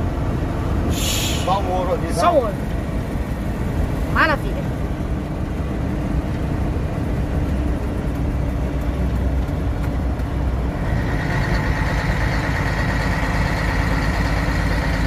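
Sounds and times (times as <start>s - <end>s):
road noise: 0.0s - 15.0s
truck engine drone: 0.0s - 15.0s
hiss: 0.9s - 1.6s.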